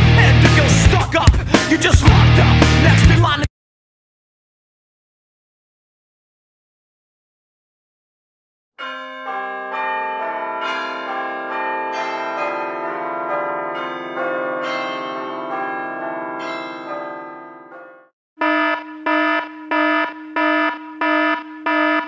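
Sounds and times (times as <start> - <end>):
bells ringing: 8.8 - 18.1.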